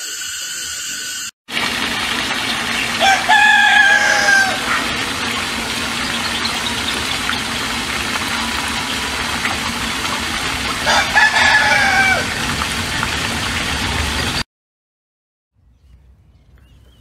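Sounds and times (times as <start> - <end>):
water pouring from a pipe: 0.0 - 14.4
hens clucking: 2.1 - 13.4
rooster crowing: 3.0 - 5.6, 10.7 - 12.5.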